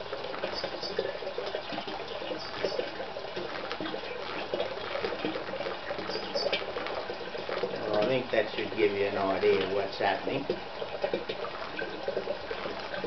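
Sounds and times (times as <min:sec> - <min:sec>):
water pouring into plastic drum: 0:00.0 - 0:13.0.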